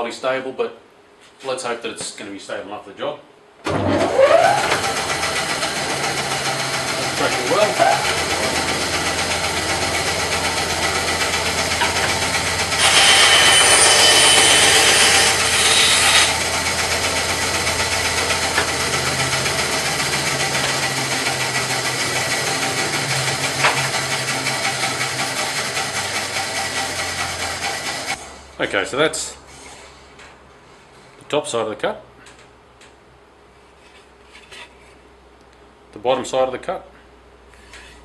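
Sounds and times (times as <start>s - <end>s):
bandsaw running: 3.8s - 28.2s
bandsaw blade cutting board: 4.0s - 28.2s.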